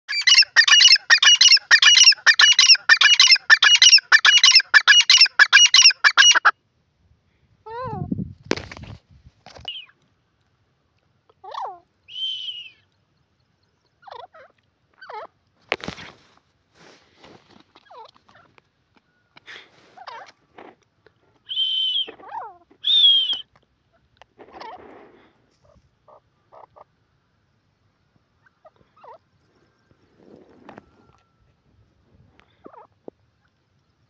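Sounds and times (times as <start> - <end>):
francolin calling: 0.1 - 6.5.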